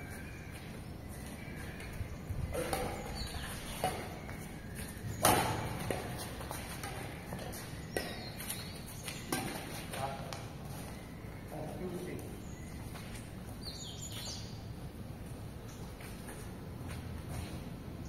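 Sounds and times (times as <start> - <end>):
racket hitting shuttlecock: 2.5 - 4.2, 5.2 - 10.4.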